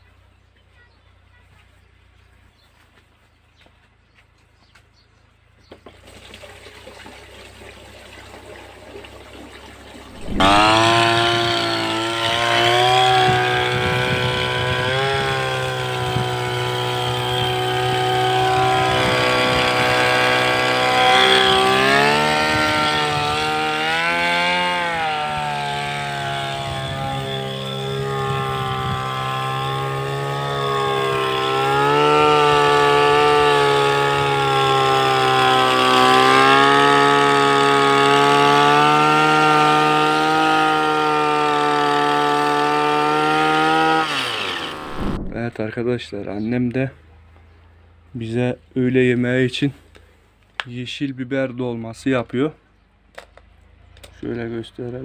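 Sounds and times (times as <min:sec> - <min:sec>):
two-stroke sprayer engine revving: 0:10.1 - 0:45.4.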